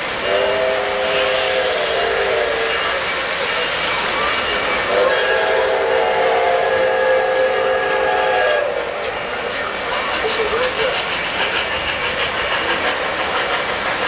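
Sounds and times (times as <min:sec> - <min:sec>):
model trains running on track: 0:00.0 - 0:14.0
model steam whistle blasts: 0:00.2 - 0:03.1, 0:04.8 - 0:09.1.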